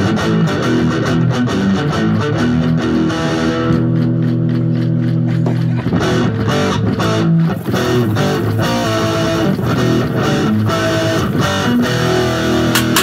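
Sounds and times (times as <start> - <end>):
amplified guitar with bending notes: 0.0 - 13.0.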